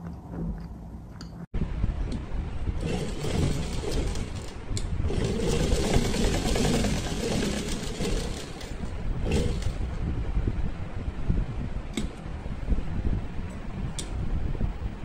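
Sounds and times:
sewing machine running: 2.8s - 10.0s.

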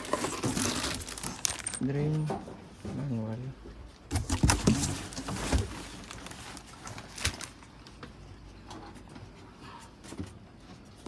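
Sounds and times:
packaging clicks and rustles: 0.0s - 1.9s, 4.1s - 7.8s.

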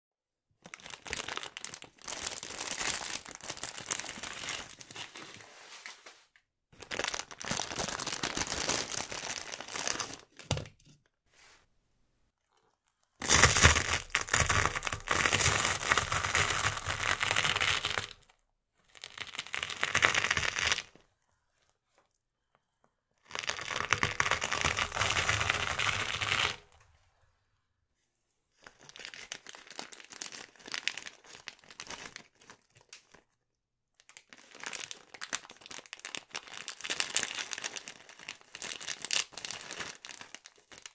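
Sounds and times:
plastic packets crinkling: 0.6s - 5.4s, 6.8s - 10.7s, 13.2s - 18.2s, 28.6s - 33.3s, 34.0s - 40.9s
bicycle tyre crushing dry noodles: 13.2s - 18.3s.

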